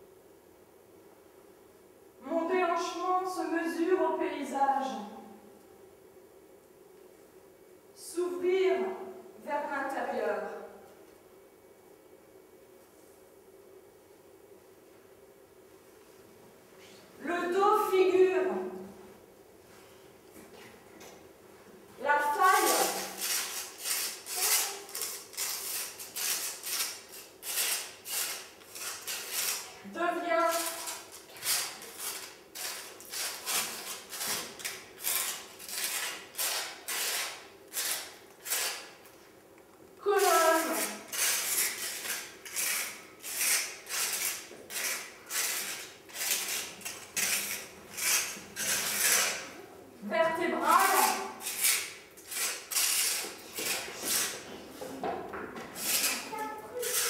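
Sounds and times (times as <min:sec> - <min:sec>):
scraping plaster wall: 0:22.3 - 0:39.0, 0:40.1 - 0:49.6, 0:50.6 - 0:57.0.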